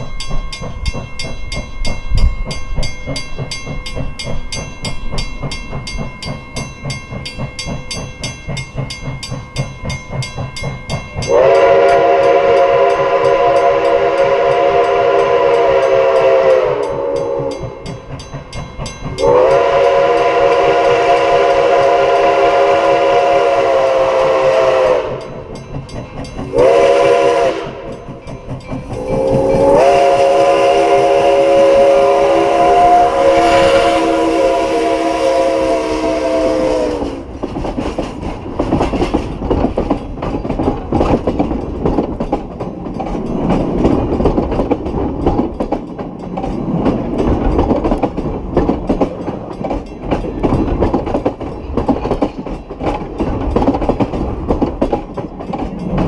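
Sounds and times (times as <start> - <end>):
steam locomotive chime whistle: 0.0 - 37.4
train cars clattering over rails: 0.0 - 56.0.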